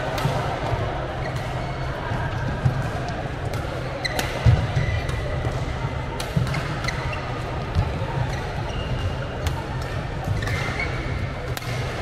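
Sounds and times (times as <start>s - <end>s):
shoes squeaking on court: 8.2s - 9.2s
racket hitting shuttlecock: 11.5s - 12.0s.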